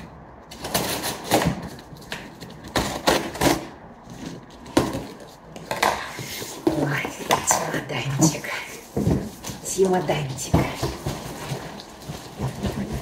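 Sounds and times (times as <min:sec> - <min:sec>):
cardboard scraping and knocking: 0:00.5 - 0:13.0
scissors snipping cardboard: 0:00.6 - 0:03.7.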